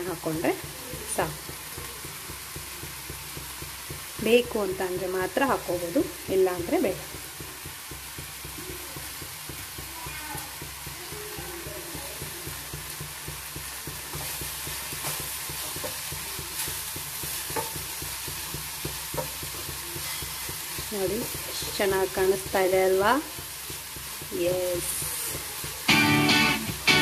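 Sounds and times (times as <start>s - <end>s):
spatula knocking on pan: 0.0s - 26.0s
food sizzling in a pan: 0.0s - 27.0s
wooden spatula scraping pan: 13.6s - 25.7s.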